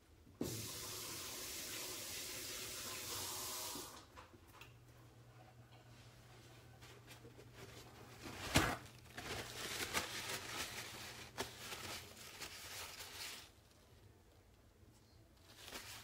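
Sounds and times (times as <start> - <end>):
paper towel rustling: 5.9 - 14.5, 15.3 - 16.0.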